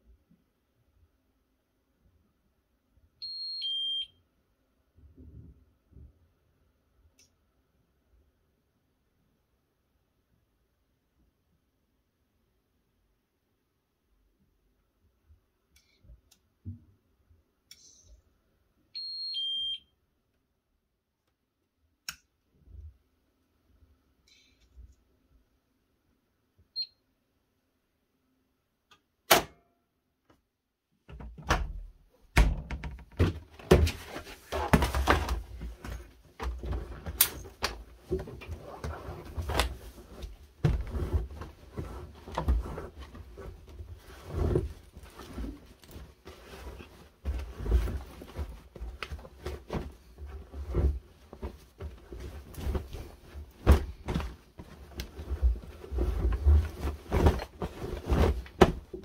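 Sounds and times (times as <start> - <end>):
wet laundry thudding in drum: 56.4 - 59.0.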